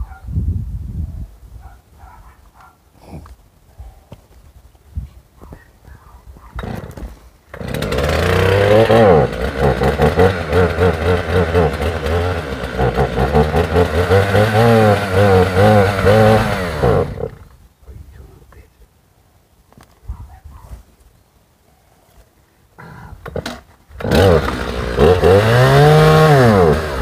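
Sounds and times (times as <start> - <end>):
chainsaw revving: 6.6 - 17.5, 23.9 - 27.0.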